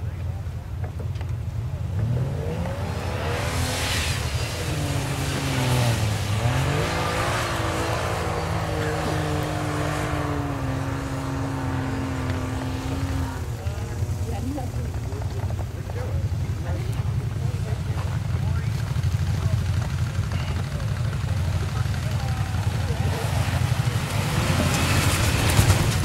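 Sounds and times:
car engine revving hard: 1.9s - 13.8s, 22.2s - 26.0s.

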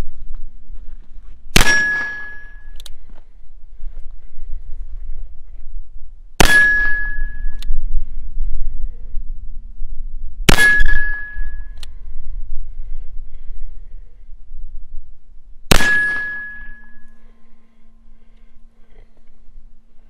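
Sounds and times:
low hum: 0.0s - 20.0s
steel target ringing: 1.6s - 2.7s, 6.4s - 7.6s, 10.5s - 11.8s, 15.7s - 17.2s.

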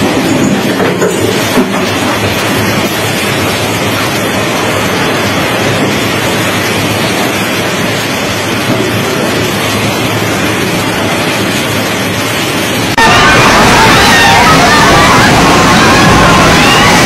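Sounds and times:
driving rain: 0.0s - 17.0s
wind rushing: 12.4s - 17.0s.

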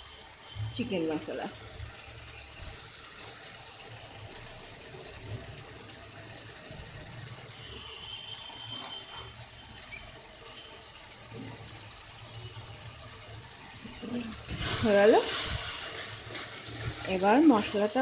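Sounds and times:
masala sizzling in a pan: 0.0s - 18.0s.

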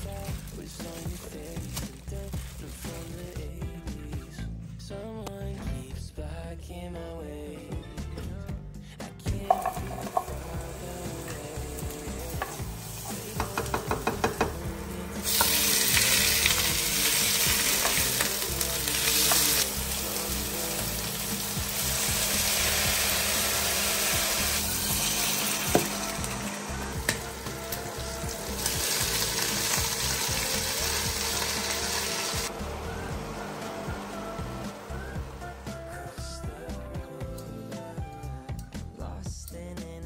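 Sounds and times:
food sizzling in a pan: 9.5s - 32.5s.

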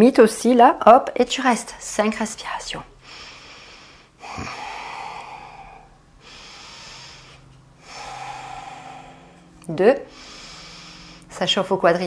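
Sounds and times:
woman breathing deeply: 3.0s - 11.4s.

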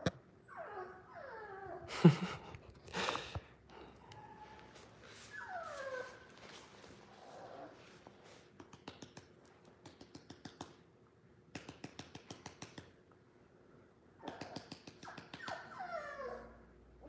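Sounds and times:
puppy whimpering: 0.4s - 1.9s, 4.0s - 6.4s, 14.0s - 16.6s.

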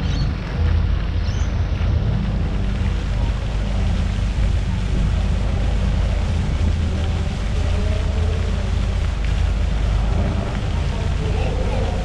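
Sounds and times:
wind buffeting microphone: 0.0s - 12.0s
faint distant voices: 5.1s - 12.0s.

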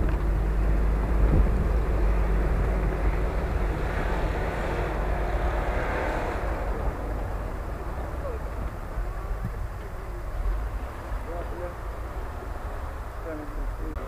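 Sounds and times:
car engine under load: 0.0s - 14.0s
tyres churning through snow: 0.0s - 14.0s.

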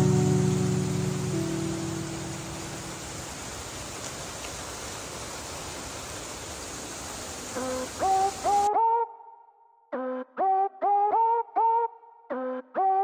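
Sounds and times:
rain falling: 0.0s - 8.7s.

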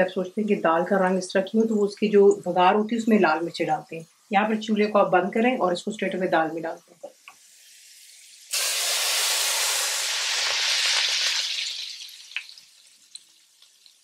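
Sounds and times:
hot oil sizzling in a pot: 7.2s - 14.0s.

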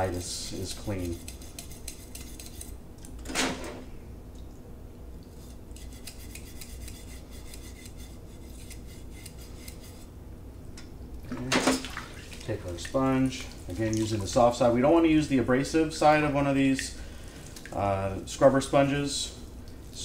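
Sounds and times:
brush scraping inside brass tubing: 5.4s - 10.1s.

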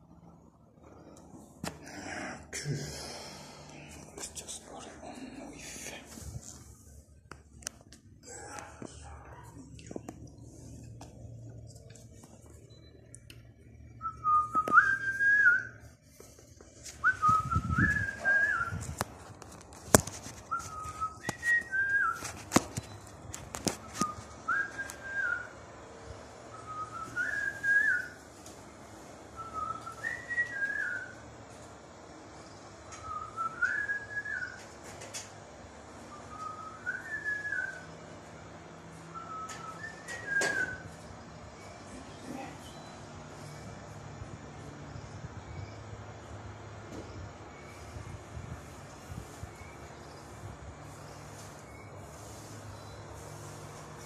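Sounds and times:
whistled phrase: 17.0s - 18.8s.

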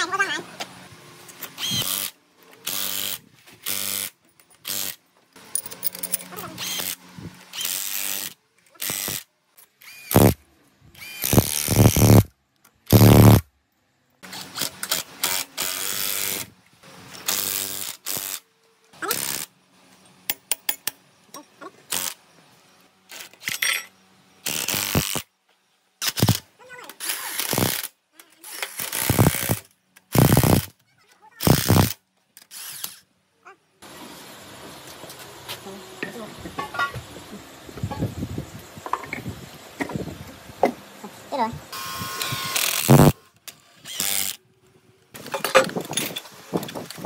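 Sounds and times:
power tool: 1.3s - 10.4s, 11.0s - 13.5s, 14.2s - 21.0s, 21.8s - 25.3s, 26.0s - 30.8s, 31.4s - 33.0s, 41.7s - 44.4s.

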